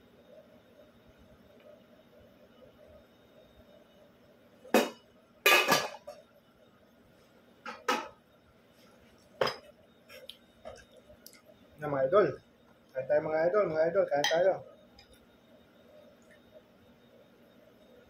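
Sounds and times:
metal pot and dishes clanking: 4.8s - 6.2s.

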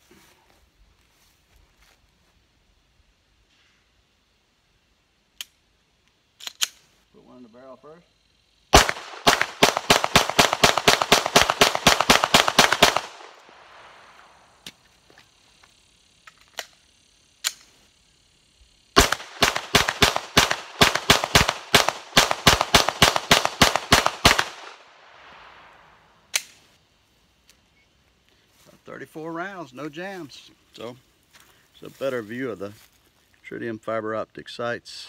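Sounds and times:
pistol shots rapid fire: 8.7s - 13.9s, 19.0s - 24.8s.

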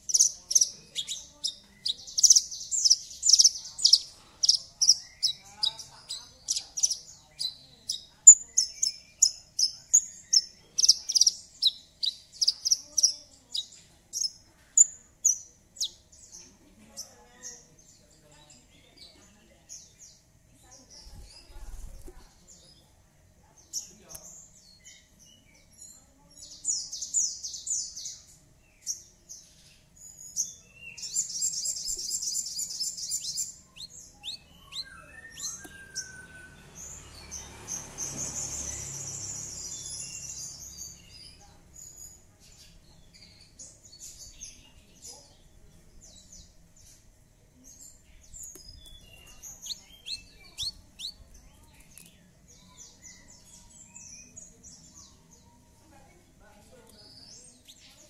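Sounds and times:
lark chirps and trills: 0.0s - 16.0s, 30.9s - 37.4s, 48.3s - 51.4s.

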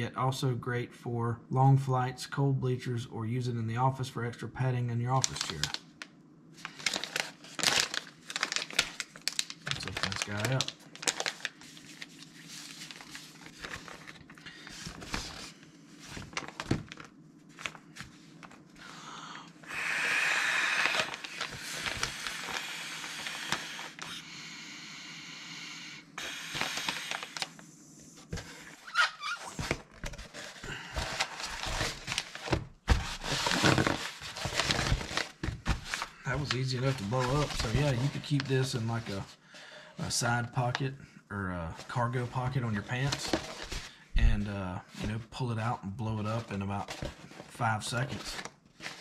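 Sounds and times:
packaging rustling: 5.2s - 5.8s, 6.6s - 18.7s, 20.8s - 24.0s, 26.3s - 27.6s, 28.3s - 39.3s, 42.8s - 44.4s, 46.3s - 49.0s.

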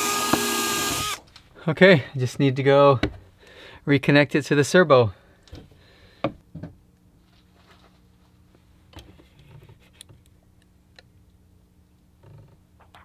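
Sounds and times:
faint electrical hum: 0.0s - 13.0s.

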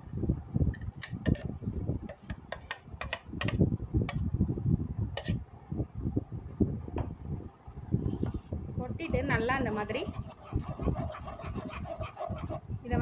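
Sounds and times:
spoon scraping in strainer: 9.7s - 12.7s.

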